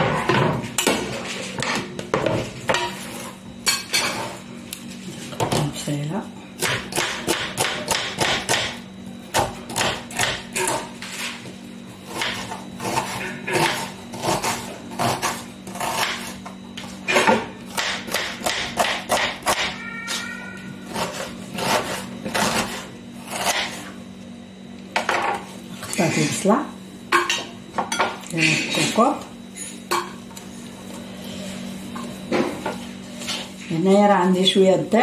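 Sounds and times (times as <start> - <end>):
knife chopping on cutting board: 17.2 - 19.7.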